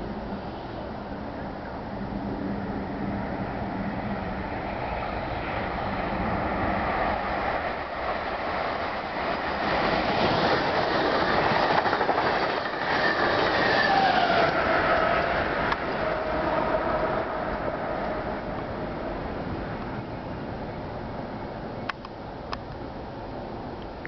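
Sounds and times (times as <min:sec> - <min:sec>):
train rushing past: 0:00.0 - 0:21.7
electric locomotive whine: 0:00.0 - 0:24.0
rail clicks: 0:06.9 - 0:18.3.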